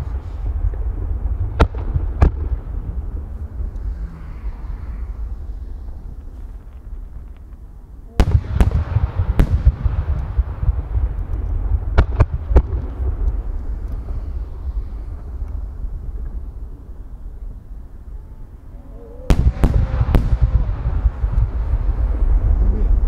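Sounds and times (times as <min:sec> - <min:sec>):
firework booms: 0:00.0 - 0:04.0, 0:08.1 - 0:16.6, 0:19.3 - 0:23.0
low rumble and echo: 0:00.0 - 0:23.0.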